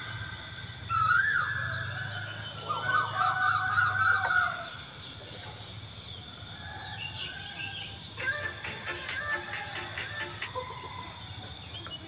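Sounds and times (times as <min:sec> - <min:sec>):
insect chorus: 0:00.0 - 0:12.0
birds calling: 0:06.8 - 0:12.0.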